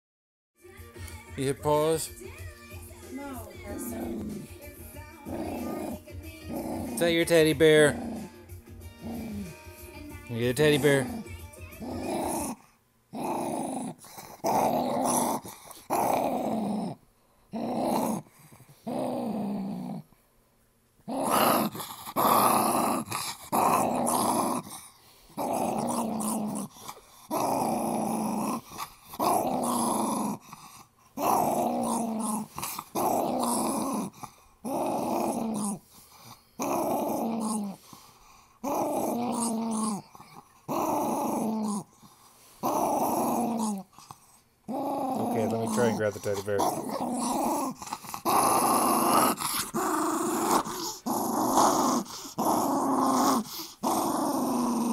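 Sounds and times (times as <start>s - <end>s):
small dog play-growling: 1.6s - 20.2s, 21.0s - 54.9s.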